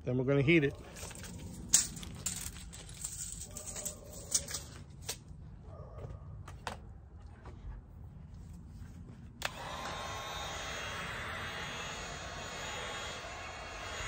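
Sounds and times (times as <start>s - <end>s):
rustling handling noise: 0.7s - 5.4s
tools clicking and knocking: 1.0s - 5.3s.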